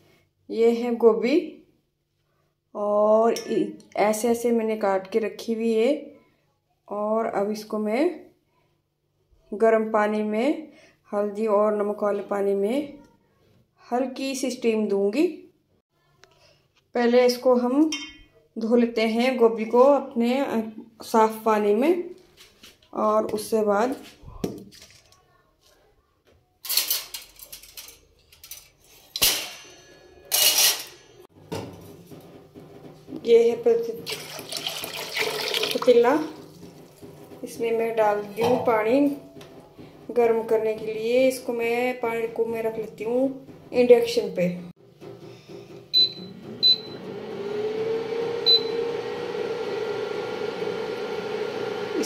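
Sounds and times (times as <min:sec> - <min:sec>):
cooktop hum: 0:22.2 - 0:52.0
metal colander rattling: 0:26.7 - 0:40.6
sharp metallic clank: 0:29.1 - 0:31.8
cooktop beeping: 0:45.9 - 0:47.4, 0:48.4 - 0:49.1.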